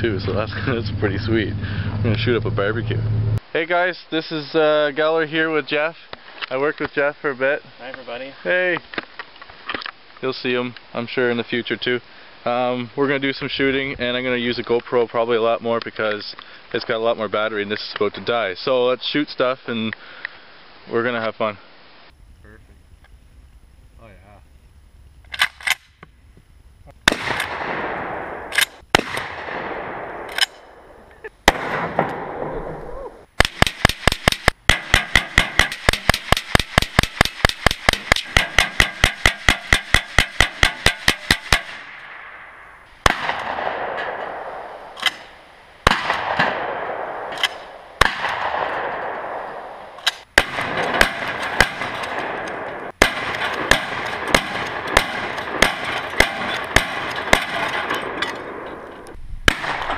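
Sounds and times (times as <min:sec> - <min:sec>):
gunshots echoing: 0:27.0 - 0:32.8, 0:33.4 - 0:58.9, 0:59.5 - 0:59.9
rapid gunfire: 0:27.1 - 0:30.1, 0:33.4 - 0:42.0, 0:50.3 - 0:58.2.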